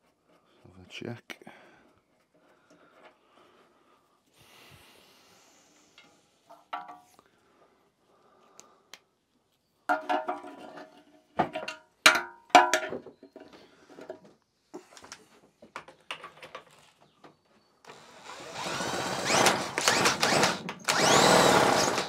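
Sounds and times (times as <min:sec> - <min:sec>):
loud whirring: 0:17.9 - 0:22.0.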